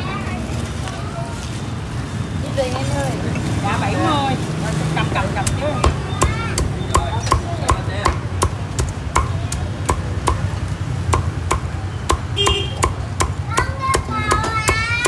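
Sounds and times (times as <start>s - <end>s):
cleaver chopping on wooden block: 5.4s - 14.8s.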